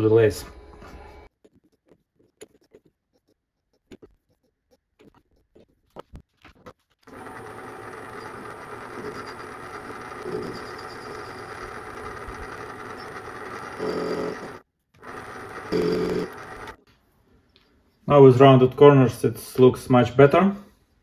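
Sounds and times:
lathe running with high whine: 7.1s - 16.8s.

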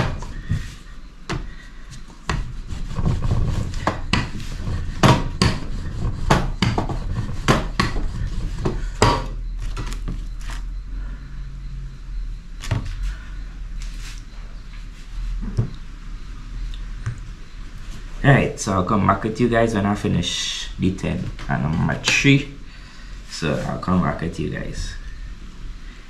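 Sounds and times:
rolling pin rolling dough: 0.0s - 10.7s
low steady hum: 0.0s - 26.0s
rolling pin knocking on table: 2.3s - 9.3s.

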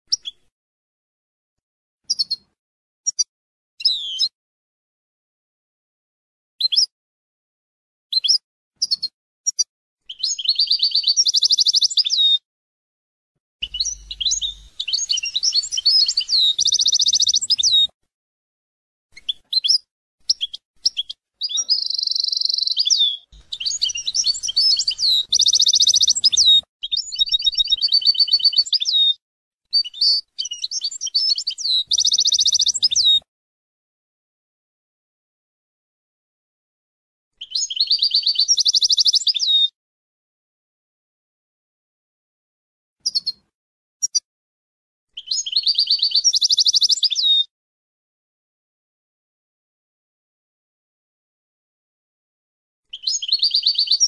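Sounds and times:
bird twittering and trilling: 0.1s - 0.5s, 2.1s - 2.5s, 3.1s - 4.3s, 8.2s - 12.4s, 13.6s - 17.9s, 19.2s - 33.2s, 37.4s - 39.7s, 43.0s - 43.4s, 45.2s - 47.4s, 52.9s - 54.0s.

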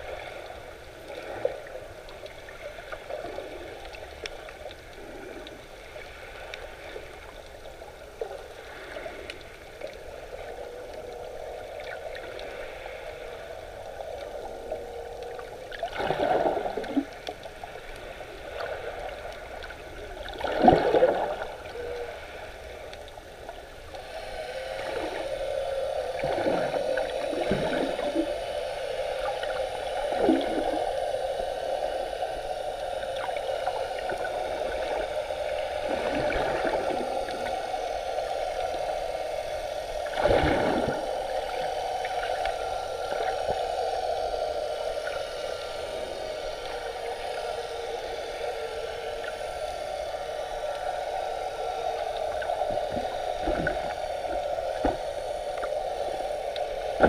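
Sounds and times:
muffled underwater hiss: 0.0s - 57.0s
gurgling swish of water: 14.7s - 22.6s, 24.6s - 31.3s, 33.0s - 37.7s, 39.3s - 44.1s.

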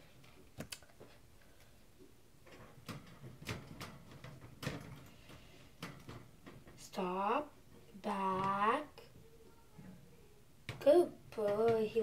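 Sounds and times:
faint clicks and knocks: 0.2s - 6.8s.

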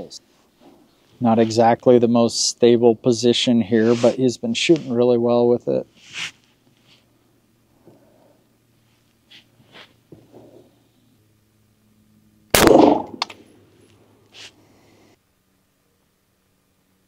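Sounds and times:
rifle shot: 12.5s - 13.4s.

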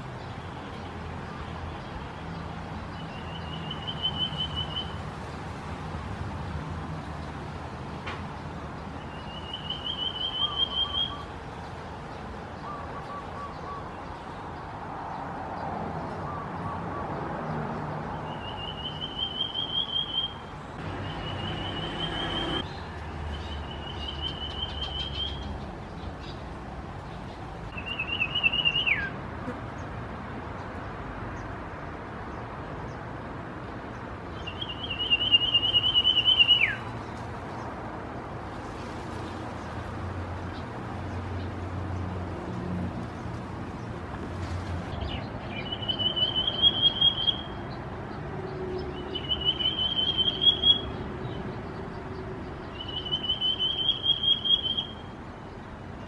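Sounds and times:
bird trilled whistled calls: 3.1s - 5.0s, 9.1s - 11.3s, 18.2s - 20.4s, 23.6s - 25.5s, 27.8s - 29.1s, 34.4s - 36.9s, 45.5s - 47.5s, 49.0s - 51.0s, 52.7s - 55.1s.

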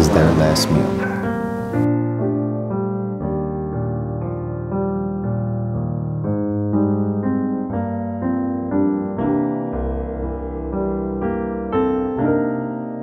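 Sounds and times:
deep bass note: 0.0s - 1.8s
piano music: 0.0s - 13.0s.

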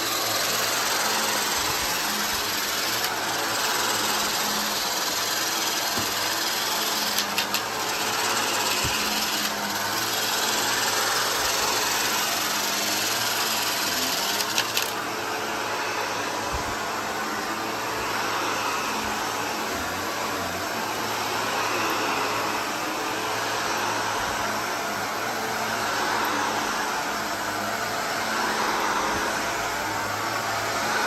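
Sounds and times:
debris rattling up vacuum: 0.0s - 15.0s
vacuum cleaner running: 0.0s - 31.0s.

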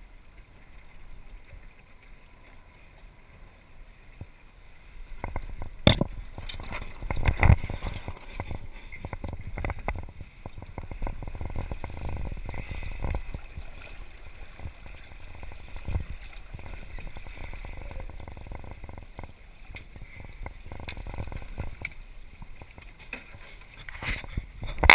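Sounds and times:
water lapping against hull: 0.0s - 24.9s
wind rumble on microphone: 5.0s - 22.8s, 23.8s - 24.9s.

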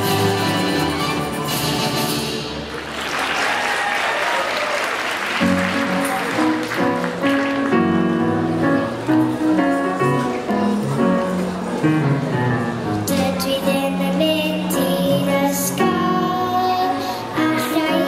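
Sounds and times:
audience applauding: 2.6s - 8.2s.

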